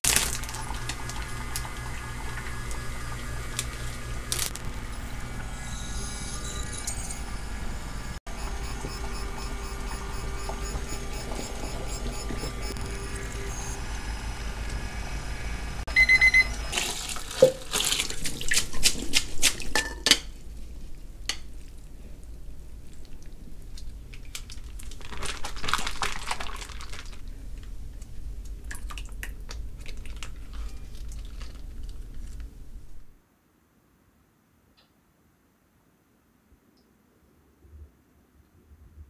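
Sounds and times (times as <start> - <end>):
digital kitchen timer beeping: 4.6 - 16.8
water splashing into a steel sink: 16.7 - 19.8.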